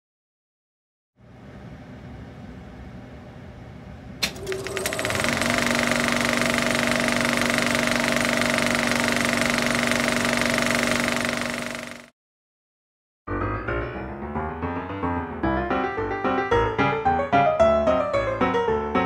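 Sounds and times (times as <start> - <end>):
projector click: 4.2 - 11.6
film projector clattering and whirring: 4.2 - 12.1.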